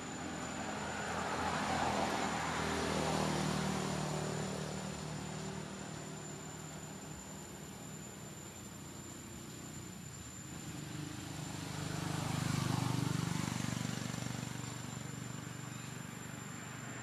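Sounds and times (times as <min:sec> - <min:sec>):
steady low hum: 0:00.0 - 0:17.0
passing engine drone: 0:10.5 - 0:17.0.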